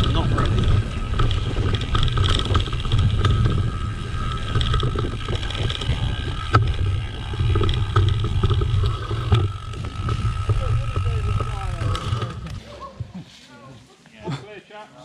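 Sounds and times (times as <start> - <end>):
wind buffeting microphone: 0.0 - 12.6
bike rattling: 0.0 - 13.1
tyres rumbling on dirt: 0.0 - 13.1.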